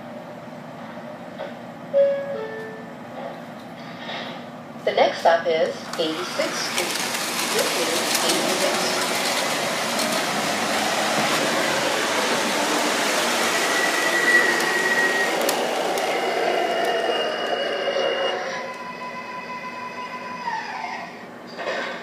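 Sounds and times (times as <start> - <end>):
model train rolling rumble: 5.8 - 17.4.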